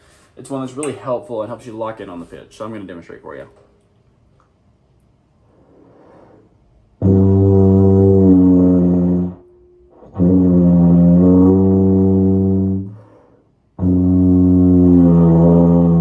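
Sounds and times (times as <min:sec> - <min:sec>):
breaths: 0:00.0 - 0:00.4, 0:05.4 - 0:06.6, 0:12.9 - 0:13.6
tuba playing low held notes: 0:07.0 - 0:13.2, 0:13.8 - 0:16.0.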